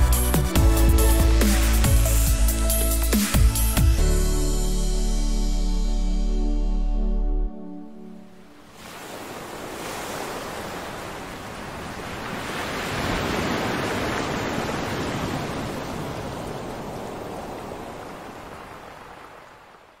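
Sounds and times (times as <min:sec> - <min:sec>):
ocean wave breaking: 0:08.6 - 0:20.0.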